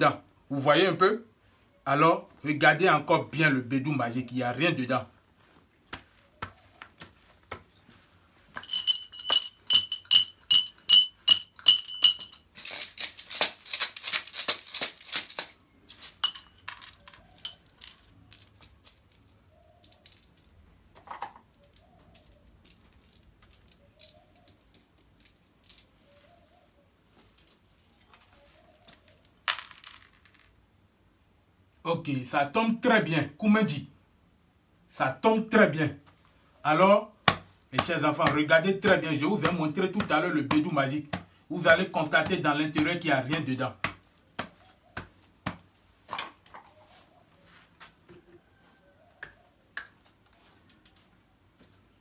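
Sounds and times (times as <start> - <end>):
light clicks of objects handled: 6.3 - 26.4
small metal bell ringing: 8.6 - 12.5, 16.1 - 17.8
beaded gourd rattle shaking: 8.6 - 20.5.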